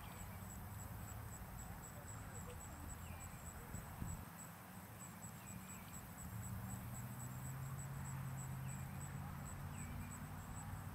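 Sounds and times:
insect chirping: 0:00.0 - 0:10.9
faint bird chirps: 0:02.0 - 0:03.9.

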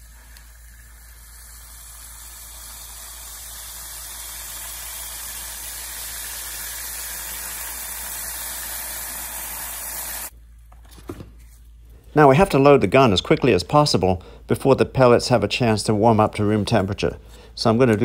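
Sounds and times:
liquid nitrogen hissing: 0:00.0 - 0:10.3.

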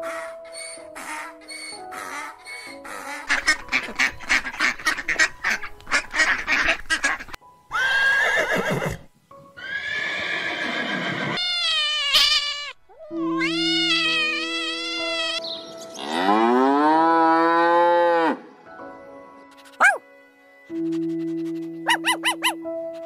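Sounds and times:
soft background music: 0:00.0 - 0:11.8, 0:12.7 - 0:23.0
horse neighing: 0:07.7 - 0:09.0, 0:09.6 - 0:11.4
cat meowing: 0:11.4 - 0:15.4
donkey braying: 0:19.8 - 0:20.0, 0:20.8 - 0:22.6.

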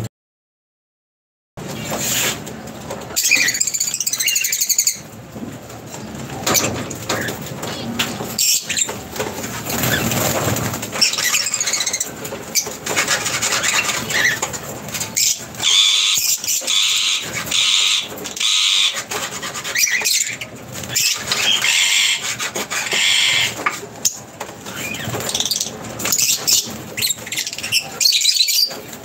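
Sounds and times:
birds flapping wings: 0:01.6 - 0:29.0
parrots shrill squealing calls: 0:03.1 - 0:05.0, 0:11.0 - 0:14.4, 0:15.2 - 0:28.8
bird chirps: 0:10.9 - 0:12.8.

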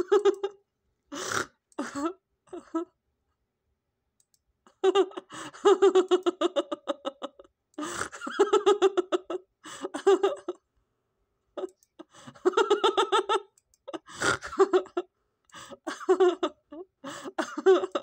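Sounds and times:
person laughing high-pitched: 0:00.0 - 0:00.6, 0:04.7 - 0:10.6, 0:11.6 - 0:15.1, 0:15.8 - 0:18.0.

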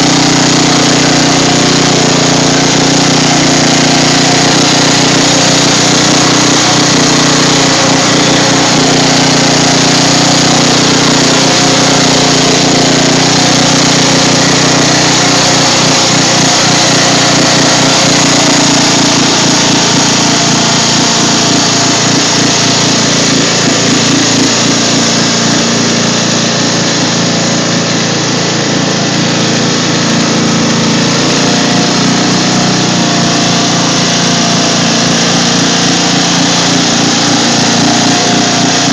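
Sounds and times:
lawn mower engine running: 0:00.0 - 0:38.9
tyres splashing in water: 0:00.1 - 0:38.9.

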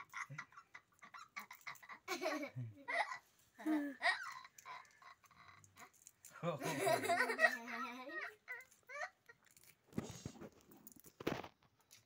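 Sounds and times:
children giggling and laughing: 0:00.0 - 0:09.4.

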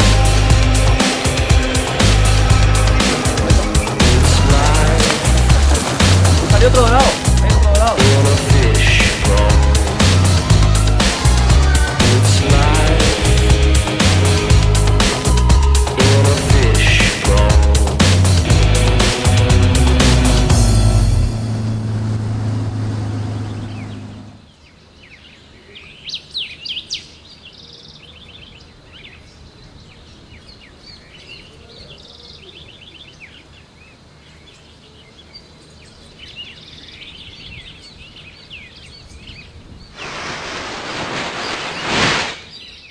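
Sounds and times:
small birds chirping: 0:00.0 - 0:15.9, 0:23.4 - 0:42.9
music: 0:00.0 - 0:22.6
loud rushing noise: 0:00.0 - 0:24.4, 0:40.0 - 0:42.6.

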